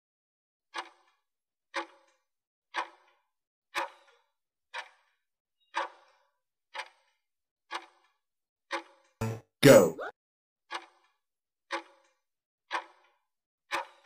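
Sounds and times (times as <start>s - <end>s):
clock ticks: 0.7s - 1.1s, 1.7s - 3.2s, 3.8s - 4.0s, 4.8s - 5.1s, 5.8s - 6.2s, 6.8s - 9.4s, 10.7s - 11.1s, 11.7s - 12.1s, 12.7s - 13.1s.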